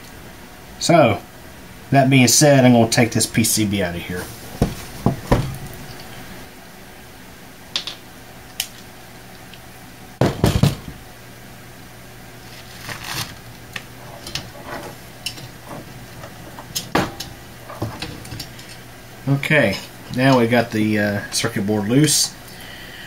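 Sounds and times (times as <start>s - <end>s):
loud clunk: 16.5s - 18.4s.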